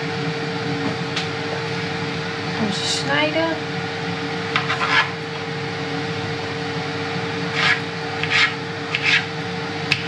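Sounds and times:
airfryer fan hum: 0:00.0 - 0:10.0
knife cutting on a board: 0:07.5 - 0:09.3.

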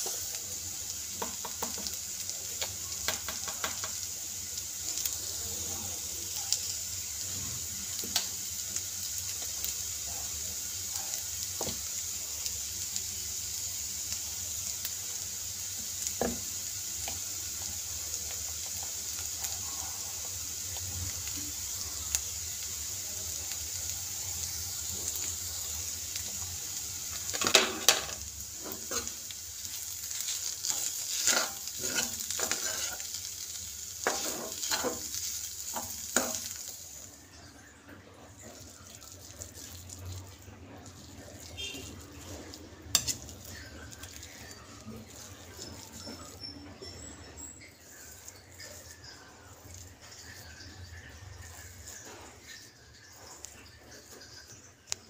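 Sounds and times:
potatoes sizzling in pan: 0:00.0 - 0:55.0
utensil knocking on pan: 0:03.1 - 0:04.0
stirring and scraping pan: 0:27.1 - 0:36.9, 0:38.2 - 0:54.6.

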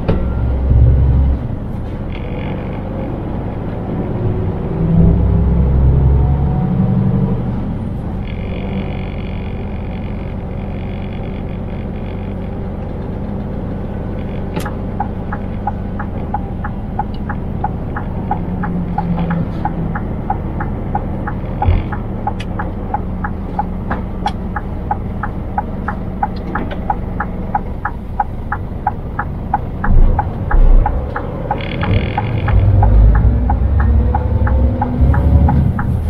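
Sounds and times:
truck engine running: 0:07.2 - 0:36.0
turn signal ticking: 0:10.8 - 0:36.0
loud low thumps: 0:29.8 - 0:31.2.

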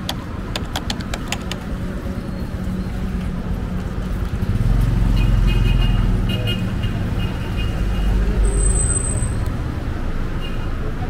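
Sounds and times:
sharp clicks: 0:00.0 - 0:01.8.

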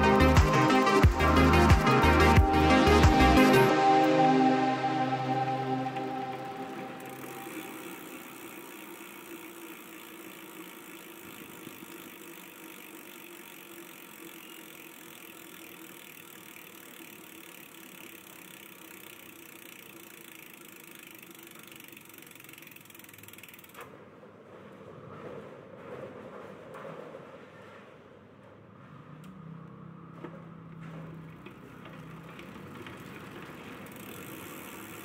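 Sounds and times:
bicycle wheel spinning: 0:00.0 - 0:04.0, 0:04.8 - 0:35.0
freehub ratcheting: 0:06.4 - 0:24.0, 0:31.3 - 0:35.0.

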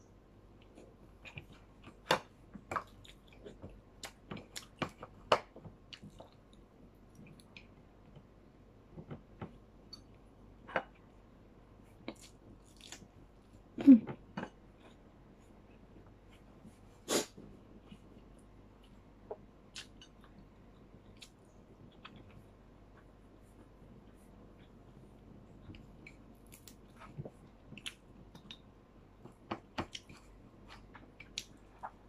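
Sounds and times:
chewing and mouth clicks: 0:02.7 - 0:05.2, 0:17.8 - 0:25.0, 0:25.6 - 0:32.0.

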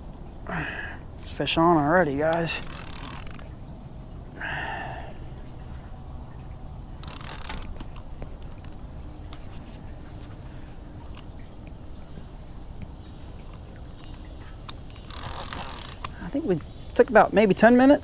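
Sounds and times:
insects droning: 0:00.0 - 0:18.0
fishing reel clicking: 0:02.3 - 0:03.5, 0:07.0 - 0:08.0, 0:14.0 - 0:16.3.

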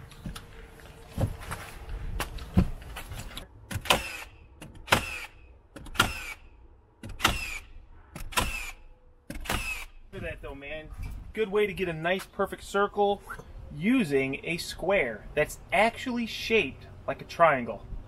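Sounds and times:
nail gun firing into wood: 0:03.7 - 0:06.4, 0:07.0 - 0:10.0.

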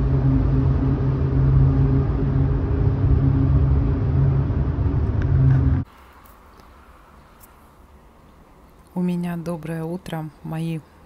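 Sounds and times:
car interior road drone: 0:00.0 - 0:05.9
engine hum: 0:00.0 - 0:05.9.

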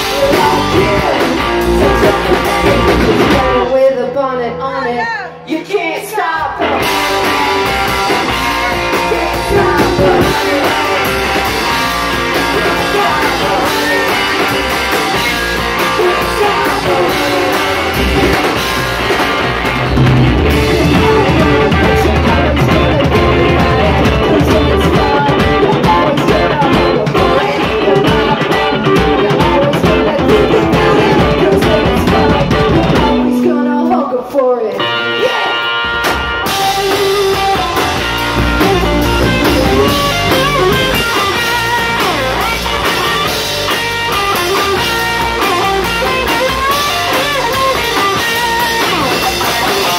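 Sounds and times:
rock band playing: 0:00.0 - 0:49.9.

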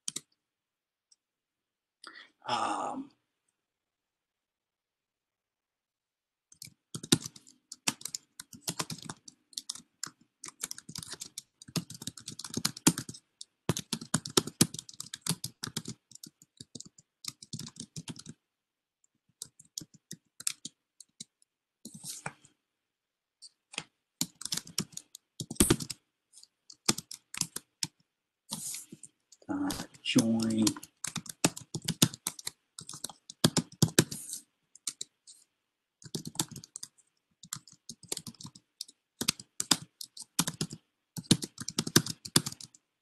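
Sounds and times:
typing on keyboard: 0:00.0 - 0:00.4, 0:06.5 - 0:18.4, 0:19.3 - 0:22.4, 0:23.4 - 0:28.0, 0:30.2 - 0:42.8.

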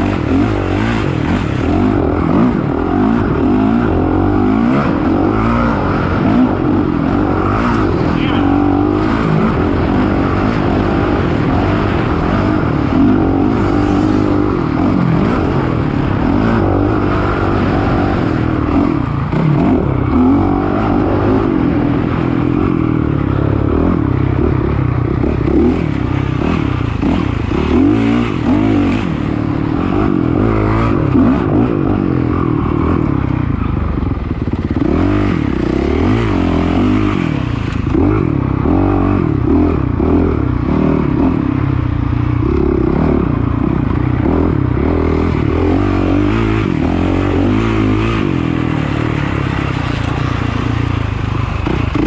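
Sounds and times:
dirt bike engine revving: 0:00.0 - 0:52.0
bike rattling: 0:41.5 - 0:52.0.

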